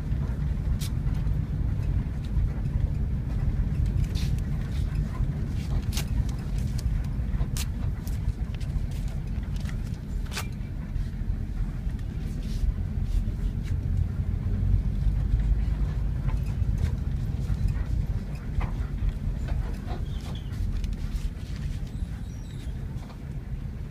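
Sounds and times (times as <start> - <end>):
bus engine rumble and road noise: 0.0 - 23.9
sharp clicks and rattles: 0.8 - 10.6.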